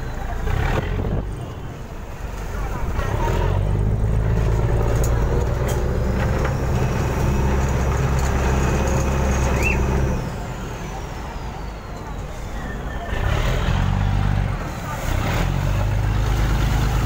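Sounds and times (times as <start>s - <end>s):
boat diesel engine droning: 0.0s - 17.0s
short high chirp: 9.5s - 9.9s.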